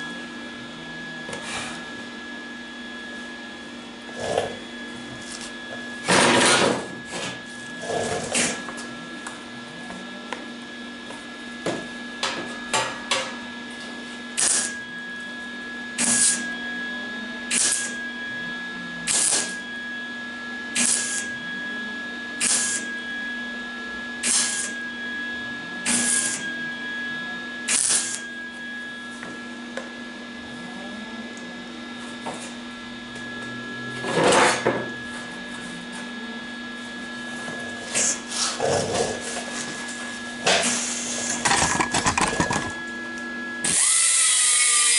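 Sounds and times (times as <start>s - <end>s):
welder hum: 0.0s - 10.0s, 11.1s - 28.5s, 30.7s - 44.9s
welding bursts: 14.4s - 14.8s, 19.1s - 19.6s, 24.2s - 24.7s, 27.7s - 28.2s.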